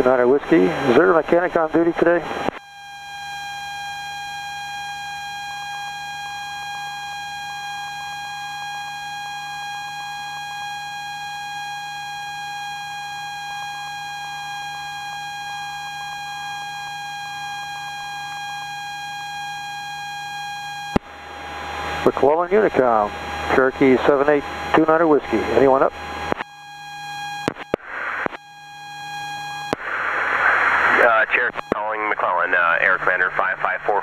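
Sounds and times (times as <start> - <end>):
buzzy electronic tone: 18.9 - 31.8.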